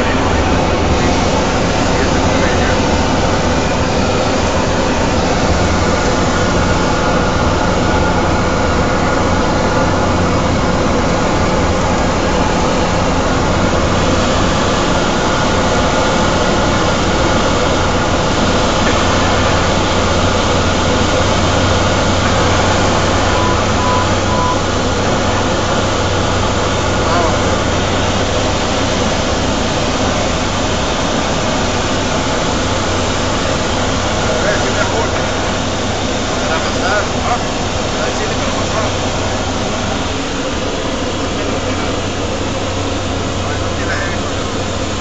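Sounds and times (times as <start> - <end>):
turboprop engine drone: 0.0 - 45.0
short beeps: 23.2 - 24.7.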